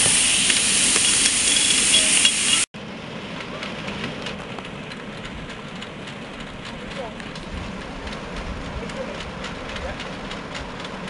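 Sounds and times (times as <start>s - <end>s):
loud steam hiss: 0.0s - 2.7s
steady outdoor noise: 0.0s - 11.0s
faint irregular clicks: 3.4s - 11.0s.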